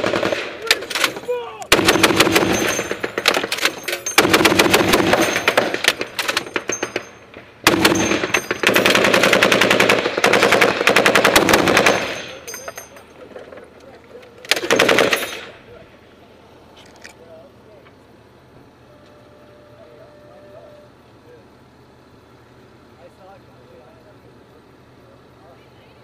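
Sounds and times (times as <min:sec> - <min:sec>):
heavy machine gun firing bursts: 0:00.0 - 0:12.4, 0:14.5 - 0:15.6.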